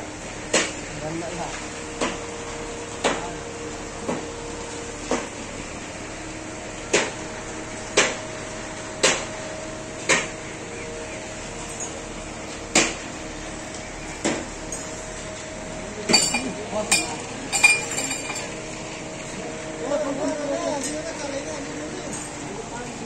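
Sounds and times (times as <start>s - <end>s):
steady background hum: 0.0s - 23.0s
metal striking steel rebar: 16.1s - 18.5s.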